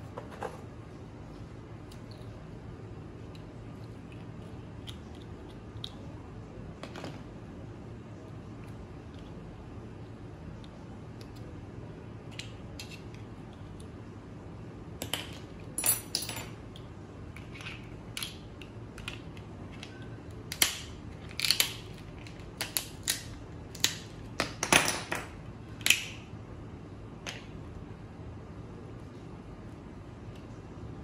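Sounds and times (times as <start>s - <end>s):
crab shells cracking: 20.5s - 24.1s.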